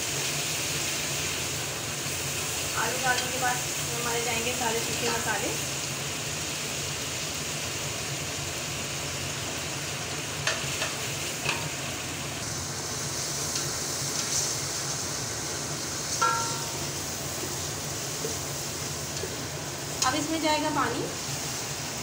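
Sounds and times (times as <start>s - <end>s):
vegetables sizzling in hot oil: 0.0s - 22.0s
spatula knocking on pot: 16.2s - 16.9s.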